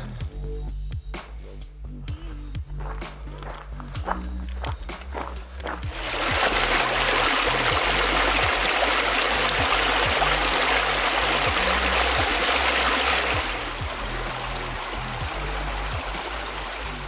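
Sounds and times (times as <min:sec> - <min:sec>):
background music beat: 0:00.0 - 0:17.0
stream rushing over rocks: 0:05.9 - 0:17.0.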